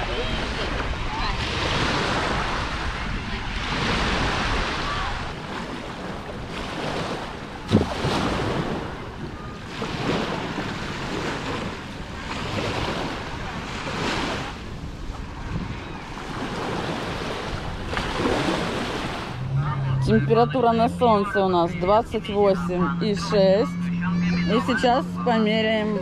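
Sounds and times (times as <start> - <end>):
waves washing onto beach: 0.0 - 19.6
wind buffeting microphone: 0.0 - 24.1.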